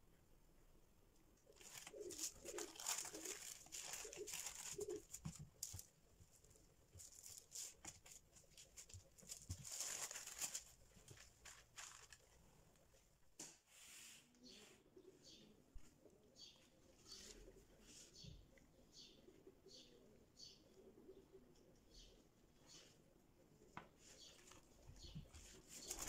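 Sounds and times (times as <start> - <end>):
cling film crinkling: 1.4 - 12.4, 25.6 - 26.0.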